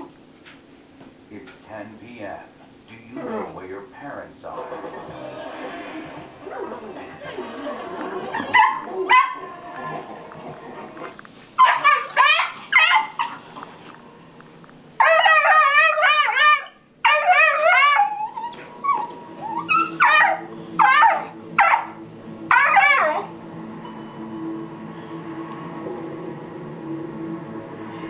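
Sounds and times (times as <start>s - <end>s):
puppies yelping and yowling: 8.2s - 9.5s, 11.5s - 13.6s, 15.0s - 23.3s.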